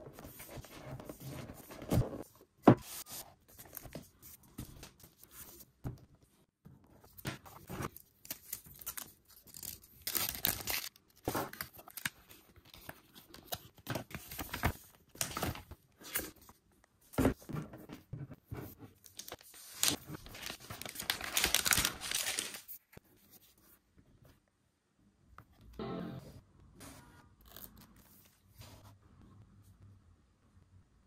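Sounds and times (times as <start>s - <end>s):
packaging rustling and crinkling: 19.1s - 22.8s.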